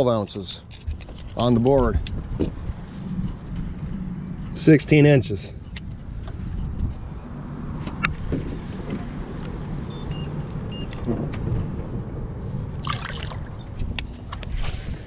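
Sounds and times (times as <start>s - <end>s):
water sloshing and trickling: 12.7s - 14.3s
water splashing: 12.8s - 13.8s.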